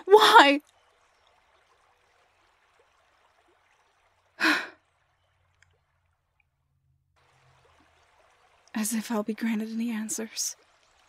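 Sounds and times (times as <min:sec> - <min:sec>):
woman sighing: 0:04.4 - 0:04.8.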